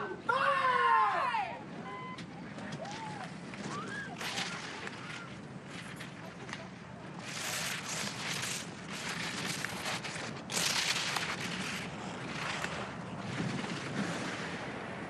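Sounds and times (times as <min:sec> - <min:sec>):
ski edges scraping on snow: 0:04.2 - 0:14.4.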